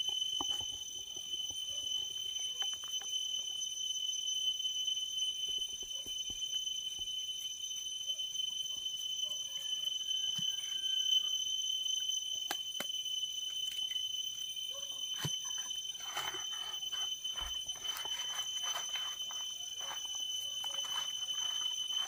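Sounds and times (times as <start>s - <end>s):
insects droning: 0.0s - 22.0s
leaves rustling: 16.0s - 22.0s.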